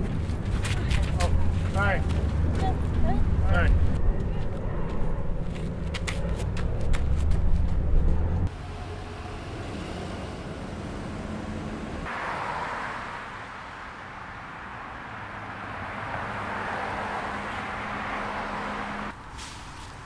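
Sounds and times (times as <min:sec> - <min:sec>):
low engine hum: 0:00.0 - 0:12.1
passing vehicles rushing: 0:00.0 - 0:20.0.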